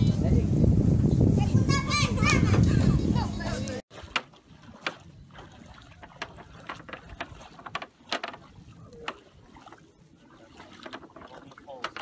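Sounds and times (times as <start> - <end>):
footsteps on wooden planks: 3.9 - 12.0
wooden boards creaking: 6.0 - 9.3, 10.8 - 12.0.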